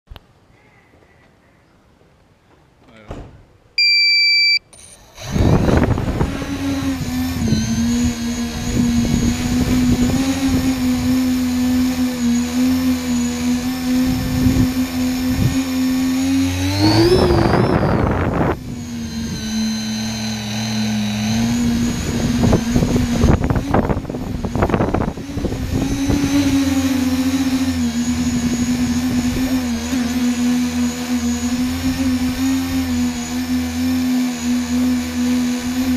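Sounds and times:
electronic beeps: 3.8 - 4.6
drone motors buzzing: 3.8 - 35.9.

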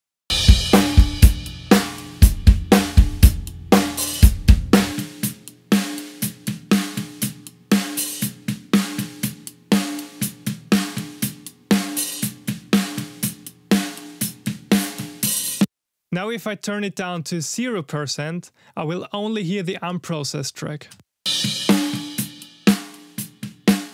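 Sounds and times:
bass drum: 0.3 - 5.3
cymbals: 0.3 - 13.2, 21.3 - 23.9
snare drum hits: 23.7 - 23.9.

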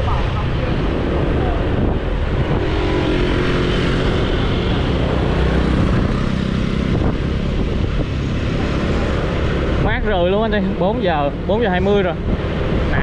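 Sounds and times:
road and traffic noise: 0.0 - 13.0.

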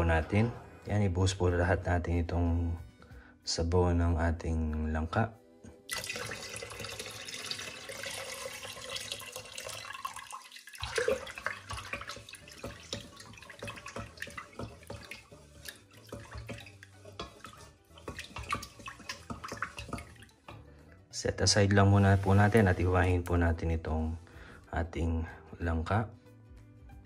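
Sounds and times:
syrup trickling into pot: 5.9 - 20.6.

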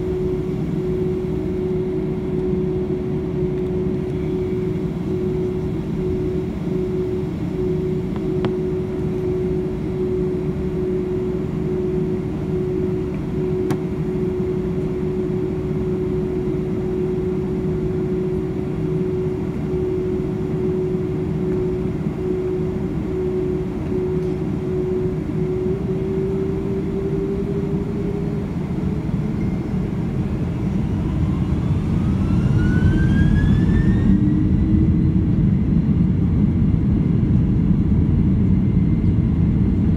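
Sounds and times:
jet engine rumble and whine: 0.0 - 39.9
engines spooling up: 30.8 - 34.8.

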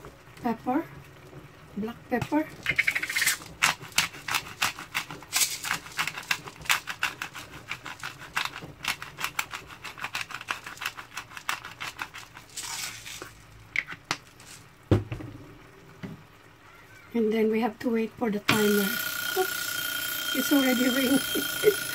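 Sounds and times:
knock: 14.9 - 15.3.

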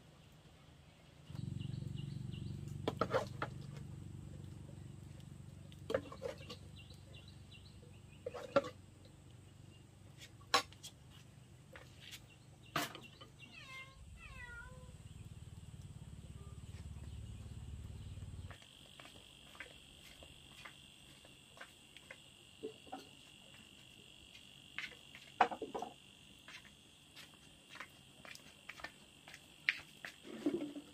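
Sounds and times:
low hum: 1.3 - 10.1, 13.8 - 20.5
animal cries: 13.4 - 15.0.

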